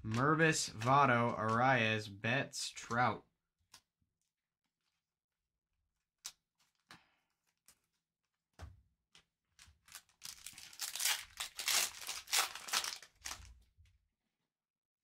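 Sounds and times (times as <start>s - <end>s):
foil wrapper ripping and crinkling: 9.6s - 13.6s.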